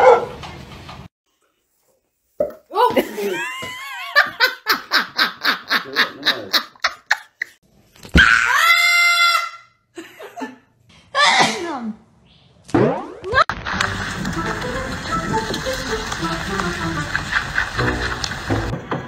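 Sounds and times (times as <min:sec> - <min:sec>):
woman laughing: 0:02.8 - 0:07.6
parrot screaming: 0:08.2 - 0:09.8.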